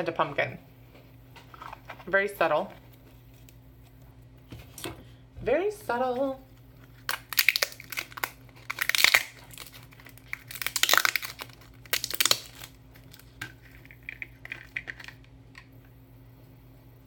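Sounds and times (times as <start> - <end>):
plastic wrapping crinkling: 6.5 - 15.6.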